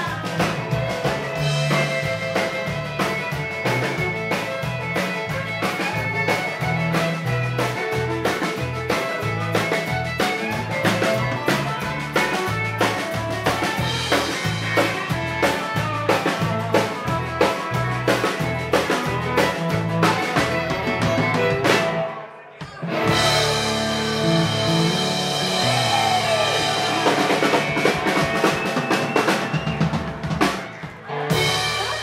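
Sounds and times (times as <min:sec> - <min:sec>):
acoustic and electric guitars: 0:00.0 - 0:32.0
drum kit beat: 0:00.0 - 0:32.0
fiddle: 0:00.0 - 0:32.0.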